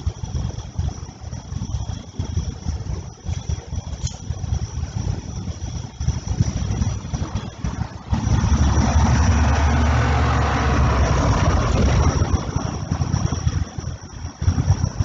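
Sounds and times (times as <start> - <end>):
car driving past on wet street: 8.8 - 11.8.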